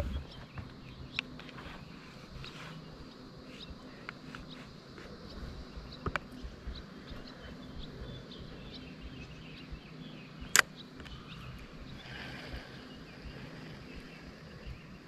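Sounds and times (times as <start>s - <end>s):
faint birds chirping: 0.0s - 15.0s
sharp clicks: 10.5s - 11.2s.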